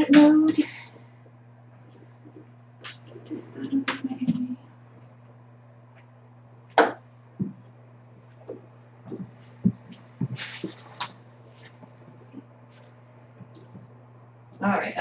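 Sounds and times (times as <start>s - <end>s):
steady low hum: 0.0s - 15.0s
thumps and knocks of handling: 8.4s - 10.8s.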